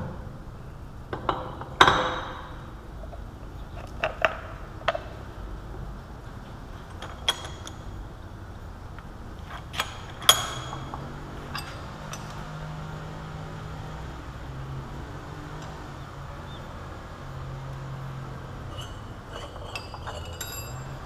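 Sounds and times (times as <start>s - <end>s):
low steady hum: 0.0s - 21.0s
metal parts clinking: 9.5s - 12.5s, 18.6s - 21.0s.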